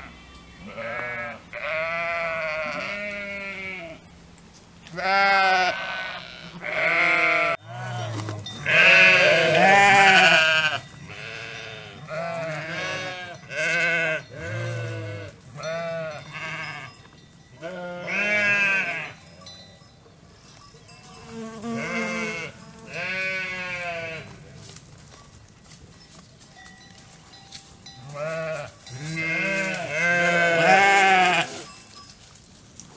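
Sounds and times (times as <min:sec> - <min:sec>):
sheep bleating: 0:00.0 - 0:04.0, 0:04.9 - 0:16.9, 0:17.6 - 0:19.2, 0:21.7 - 0:24.3, 0:28.1 - 0:31.7.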